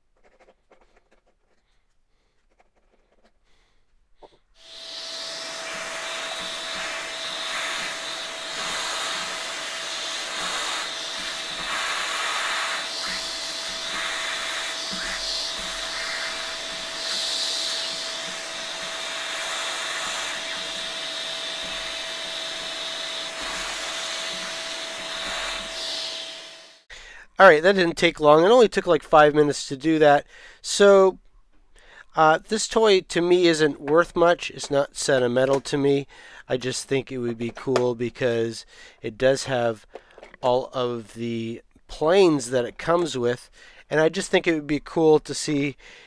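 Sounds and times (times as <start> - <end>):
vacuum cleaner whining: 4.6 - 26.9
vacuum nozzle sucking debris: 4.6 - 26.9.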